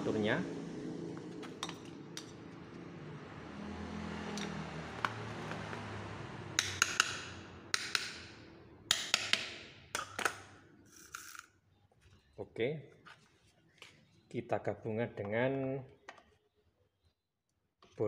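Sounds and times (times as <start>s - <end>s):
small hammer tapping on metal: 6.6s - 8.3s, 8.9s - 10.3s.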